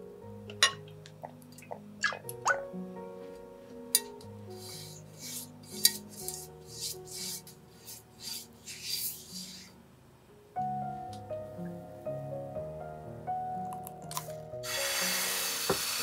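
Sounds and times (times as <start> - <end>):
soft background music: 0.0 - 16.0
pastry brush scratching on pan: 4.6 - 9.8.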